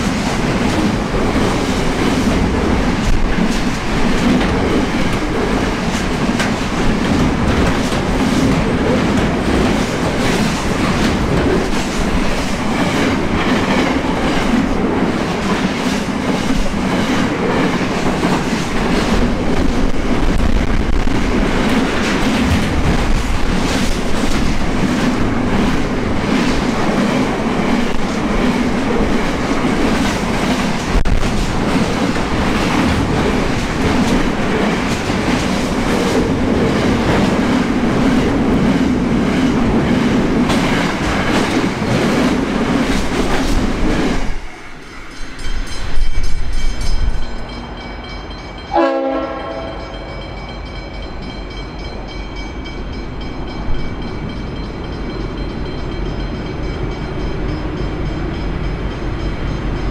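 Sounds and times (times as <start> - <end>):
freight train rumbling and clattering: 0.0 - 59.9
train horn blast: 48.7 - 50.1.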